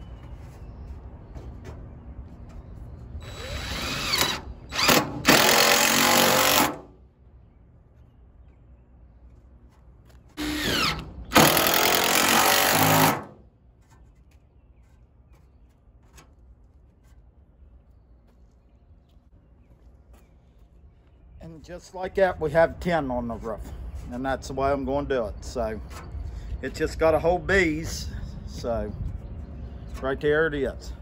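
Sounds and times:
impact driver driving screws: 0:03.4 - 0:06.9, 0:10.4 - 0:13.4.

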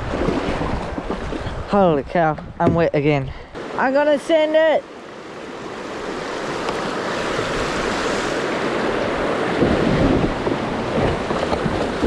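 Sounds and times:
whitewater rushing and splashing: 0:03.6 - 0:12.0.

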